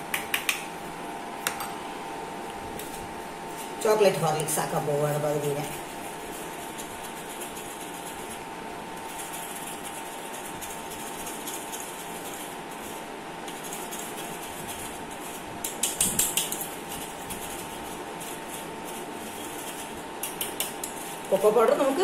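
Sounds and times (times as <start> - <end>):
steady low hum: 0.0 - 22.0
spoon scraping metal tea strainer: 13.5 - 21.8.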